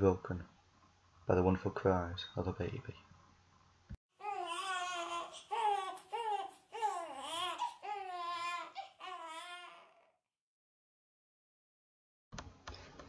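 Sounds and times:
newborn baby crying: 0:04.2 - 0:10.2.

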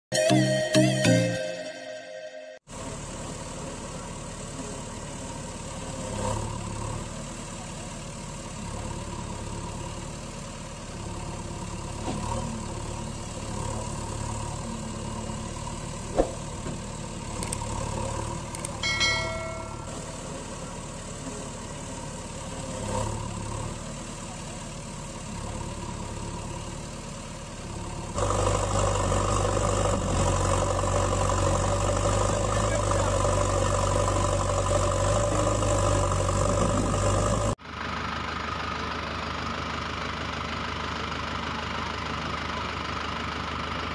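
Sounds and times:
bell-like notification chime: 0:00.1 - 0:02.7, 0:18.8 - 0:20.1
engine idling: 0:02.7 - 0:43.9.

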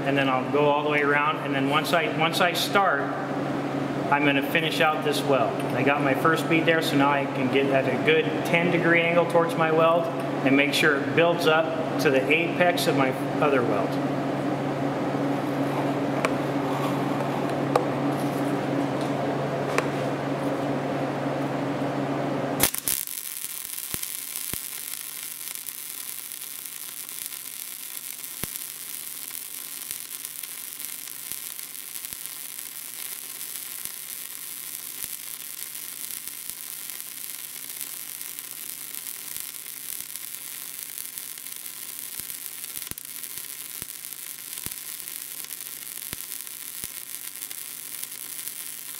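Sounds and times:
machine hum: 0:00.0 - 0:48.9
welding arc hissing and crackling: 0:22.6 - 0:48.9.

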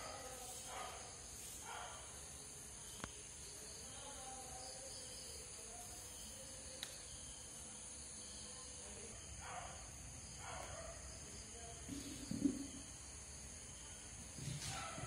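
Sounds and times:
crickets chirring: 0:00.0 - 0:15.0
faint sharp clicks: 0:06.7 - 0:07.1.

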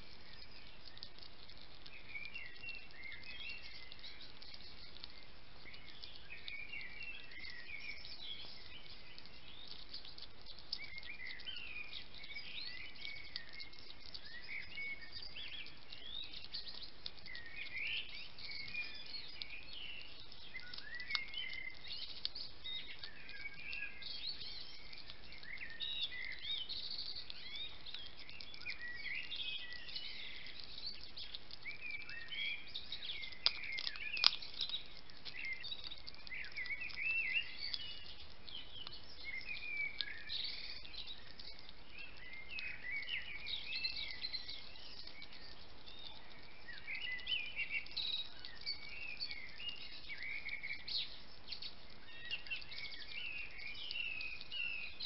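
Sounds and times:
hedgehog chewing: 0:00.8 - 0:01.9, 0:20.2 - 0:37.0.

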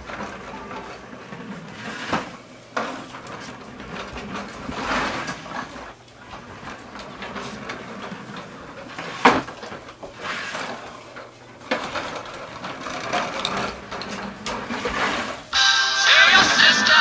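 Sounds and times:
plastic wheels rattling on floor: 0:00.0 - 0:15.6
music: 0:15.6 - 0:17.0.

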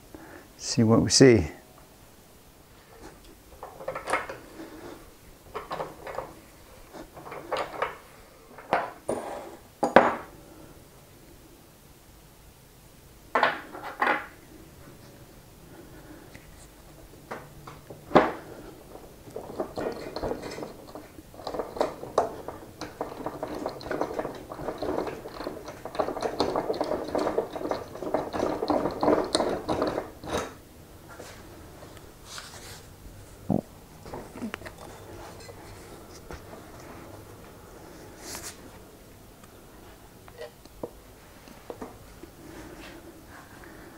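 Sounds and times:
rattling and scraping: 0:03.0 - 0:09.1, 0:16.0 - 0:33.4, 0:34.0 - 0:38.7.

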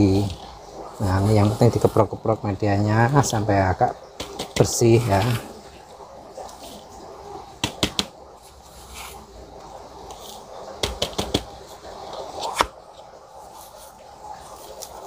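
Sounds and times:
potting mix rustling: 0:00.0 - 0:15.0.

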